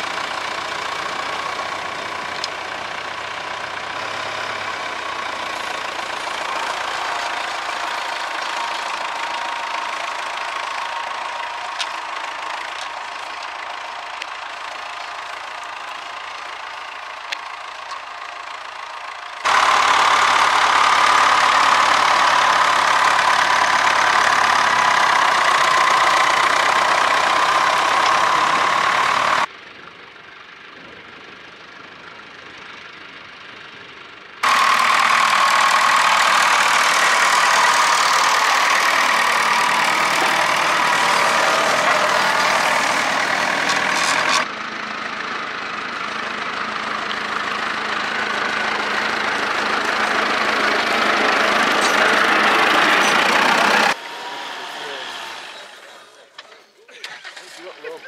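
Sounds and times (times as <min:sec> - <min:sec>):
second tractor engine: 0:00.0 - 0:58.0
tractor engine running: 0:00.0 - 0:58.0.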